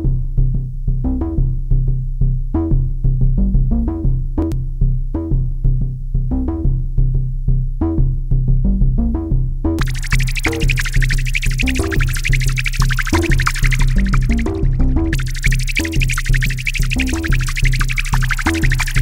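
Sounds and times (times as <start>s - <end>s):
deep bass: 0.2s - 19.0s
repeating short fading notes: 9.8s - 19.0s.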